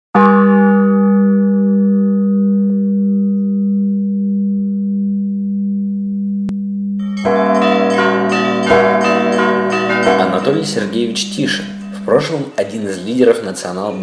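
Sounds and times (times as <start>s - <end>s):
deep church bell ringing: 0.2s - 5.3s, 7.0s - 14.0s
higher bells pealing: 7.0s - 14.0s.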